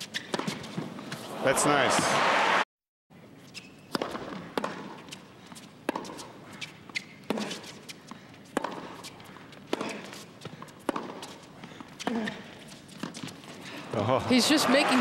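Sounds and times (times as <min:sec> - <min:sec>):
tennis ball bouncing: 0:00.0 - 0:01.2, 0:03.9 - 0:13.5
tennis racket hitting ball: 0:03.9 - 0:05.1, 0:05.8 - 0:06.3, 0:08.4 - 0:12.3.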